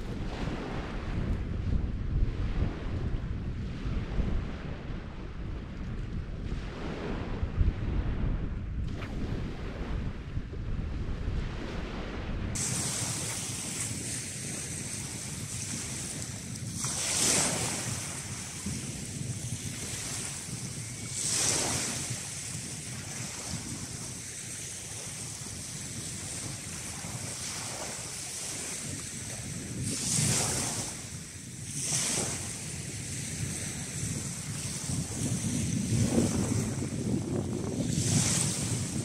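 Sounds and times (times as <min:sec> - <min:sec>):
wind: 0:00.0 - 0:39.0
waves washing over pebbles: 0:12.6 - 0:37.1.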